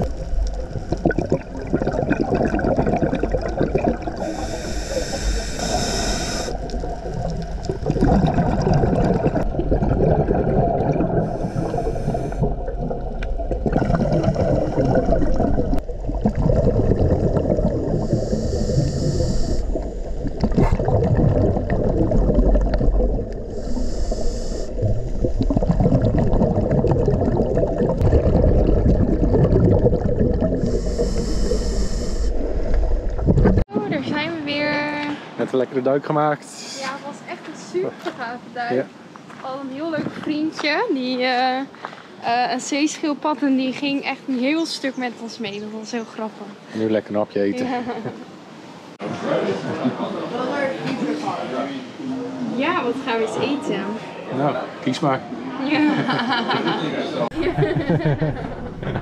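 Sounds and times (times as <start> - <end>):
scuba regulator bubbling: 0.0 - 34.3
underwater rumble: 0.0 - 34.6, 57.3 - 59.0.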